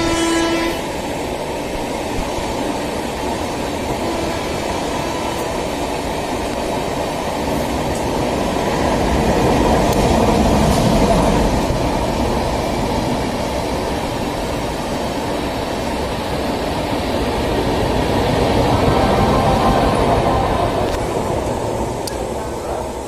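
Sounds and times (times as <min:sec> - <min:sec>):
train coaches rumbling on track: 0:00.0 - 0:23.0.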